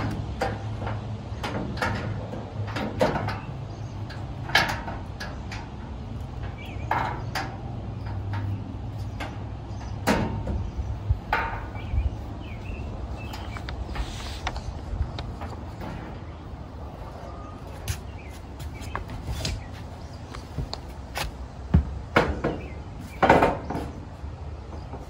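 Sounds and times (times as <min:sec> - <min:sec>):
steel panels knocking and clicking: 0:00.0 - 0:12.0, 0:20.4 - 0:25.0.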